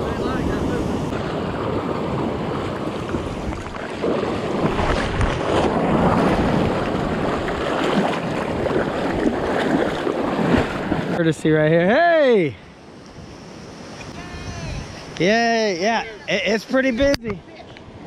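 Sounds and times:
wind buffeting the microphone: 0.0s - 11.2s, 13.1s - 16.3s
surf washing: 0.0s - 18.0s.

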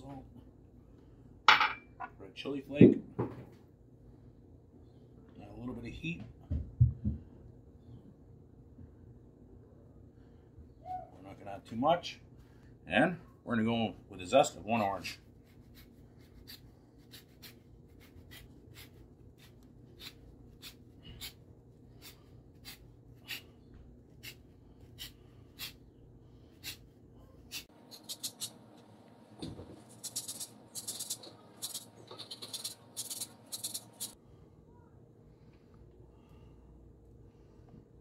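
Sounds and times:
grater scraping orange: 27.5s - 28.6s, 29.8s - 34.2s.

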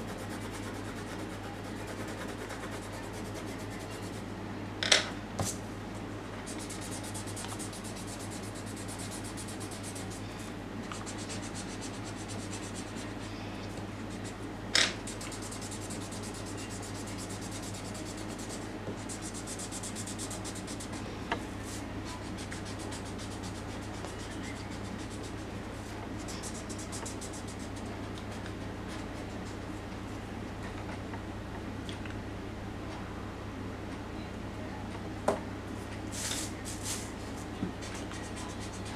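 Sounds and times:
pencil scratching on paper: 0.0s - 4.2s, 6.5s - 10.2s, 11.0s - 13.1s, 15.0s - 21.0s
steady low hum: 0.0s - 38.9s.

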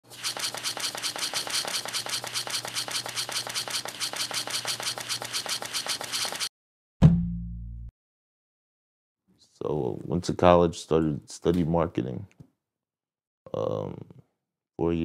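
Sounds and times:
rapid even clicking: 0.1s - 6.5s.

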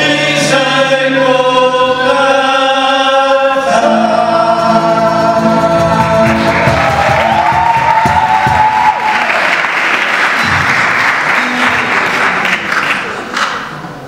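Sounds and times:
audience applauding: 6.0s - 13.8s.

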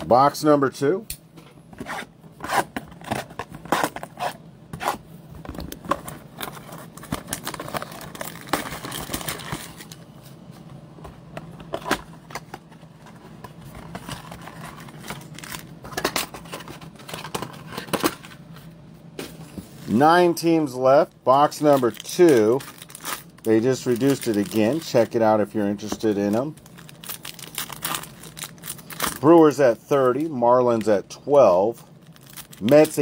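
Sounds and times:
cardboard and foil tearing: 21.7s - 25.1s, 26.3s - 29.3s, 32.0s - 33.0s.

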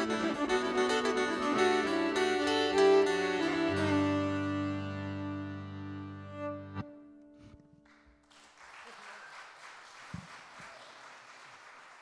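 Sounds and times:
fiddle guitar and accordion chord: 0.0s - 7.7s
audience applauding: 7.8s - 12.0s.

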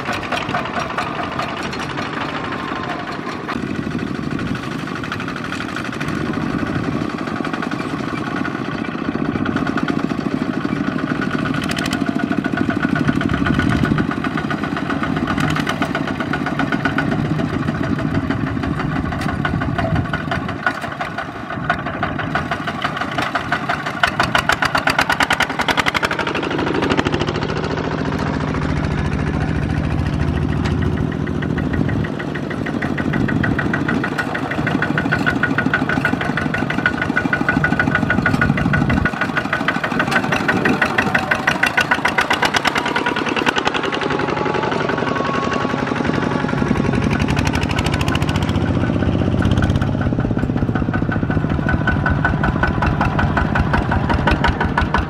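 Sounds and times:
diesel tractor engines chugging: 0.0s - 55.0s.

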